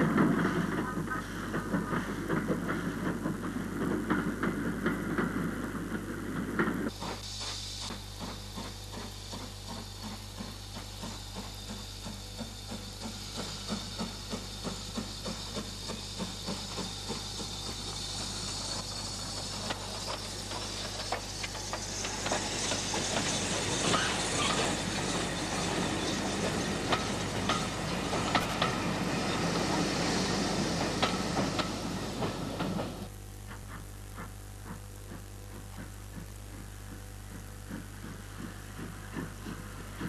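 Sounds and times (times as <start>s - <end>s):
steam hissing: 0.0s - 40.0s
steam locomotive exhaust beats: 0.0s - 40.0s
rail clatter: 8.2s - 33.1s.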